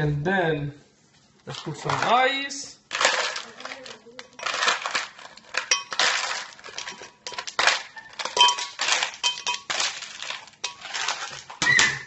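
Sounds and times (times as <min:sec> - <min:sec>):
ice cubes clattering into glass: 0:02.9 - 0:12.0.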